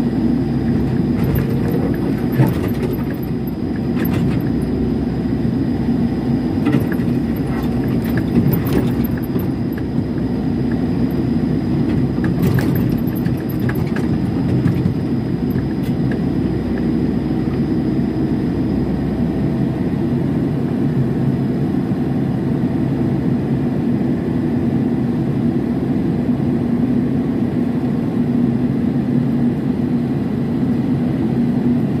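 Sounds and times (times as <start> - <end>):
diesel engine running: 0.0 - 20.8
sharp knocks and scrapes: 0.7 - 4.6, 6.6 - 10.1.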